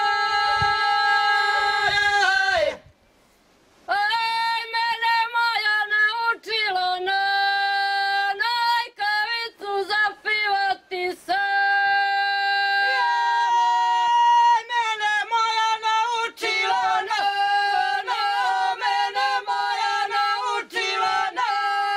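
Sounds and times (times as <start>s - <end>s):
women singing unaccompanied: 0.0s - 2.9s, 3.9s - 21.9s.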